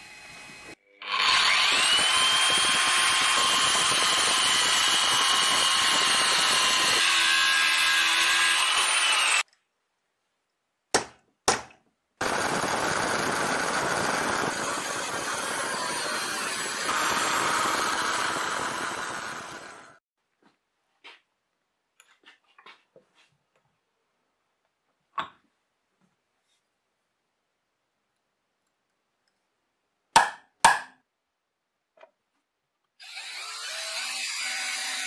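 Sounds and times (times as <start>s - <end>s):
angle grinder cutting steel: 0.0s - 9.5s, 12.2s - 20.0s, 33.0s - 35.0s
drill press boring through steel: 0.2s - 9.4s, 12.2s - 20.0s.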